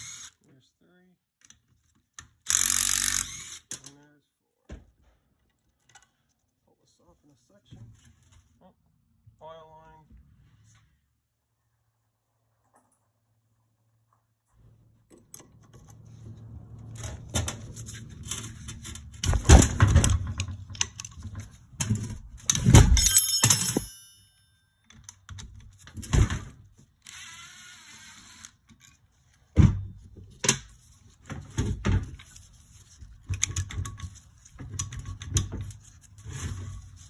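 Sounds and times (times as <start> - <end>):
metal parts knocking and clunking: 17.0 - 24.0, 33.0 - 36.6.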